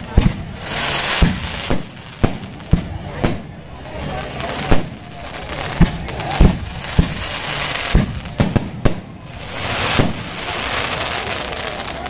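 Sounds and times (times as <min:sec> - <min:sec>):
hissing of burning fireworks: 0:00.0 - 0:12.0
firework shells bursting: 0:04.2 - 0:10.7.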